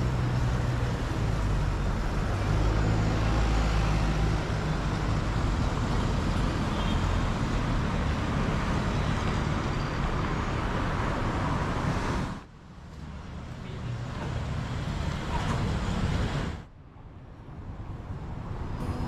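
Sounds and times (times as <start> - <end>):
quiet street background: 0.0 - 19.0.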